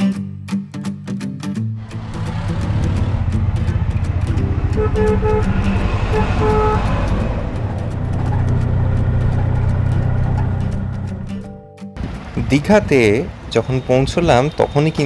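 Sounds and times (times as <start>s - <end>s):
auto-rickshaw engine running: 1.8s - 11.5s
short horn toots: 4.5s - 7.8s.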